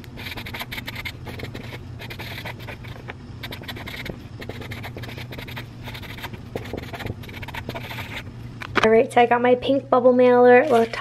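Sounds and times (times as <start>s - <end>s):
felt-tip marker scratching on card: 0.2s - 8.2s.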